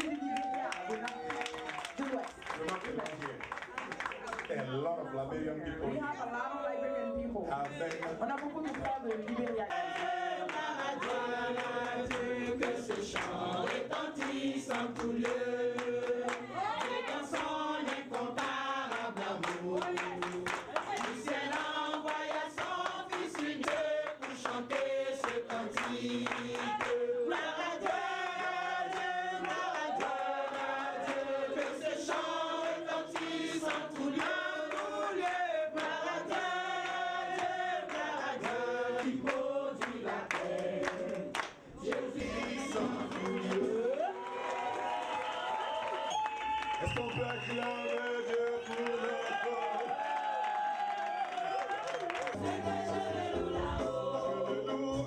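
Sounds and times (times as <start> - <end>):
choir singing a worship song: 9.4 - 44.2, 52.3 - 55.0.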